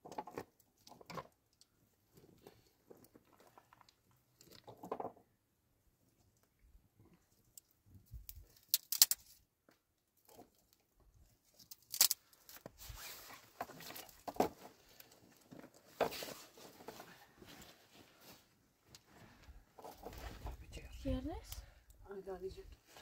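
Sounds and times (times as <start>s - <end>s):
twigs rustling and crackling: 7.4s - 9.4s, 10.2s - 19.1s
wood fire cracks: 8.6s - 9.2s.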